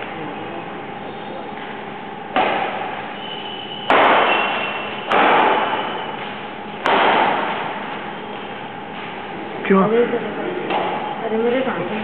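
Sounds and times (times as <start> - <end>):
racket hitting shuttlecock: 3.9 - 5.9.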